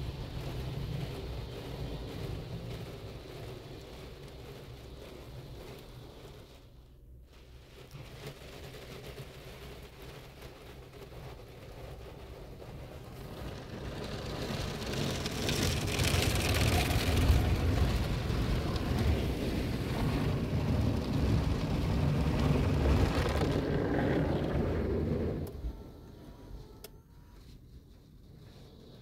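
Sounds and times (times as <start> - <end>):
car wash brushes and spray: 0.0 - 26.8, 27.4 - 29.0.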